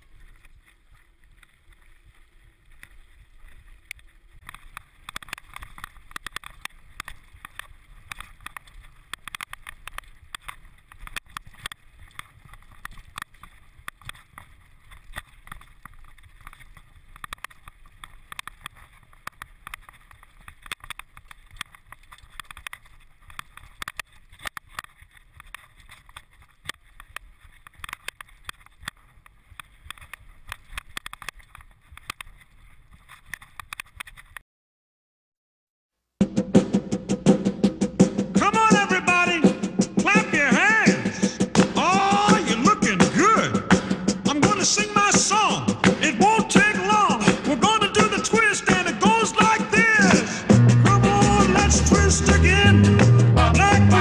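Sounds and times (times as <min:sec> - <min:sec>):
mountain bike rattling: 0:00.0 - 0:34.4.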